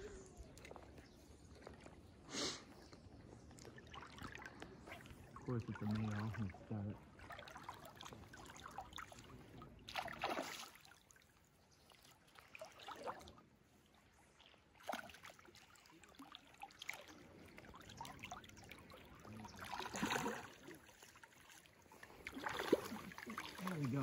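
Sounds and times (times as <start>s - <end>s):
fish splashing in water: 3.6s - 11.2s, 14.4s - 24.0s.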